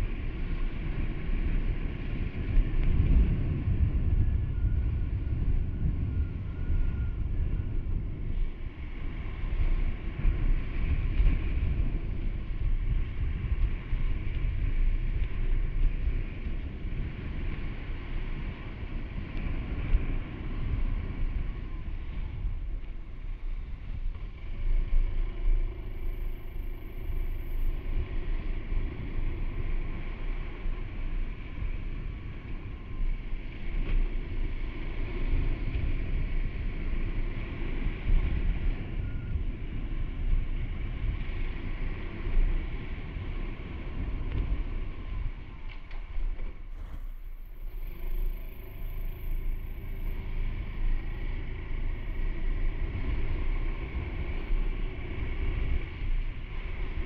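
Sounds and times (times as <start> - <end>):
motorcycle engine running: 0.0 - 57.0
road noise: 0.0 - 57.0
wind: 0.0 - 57.0.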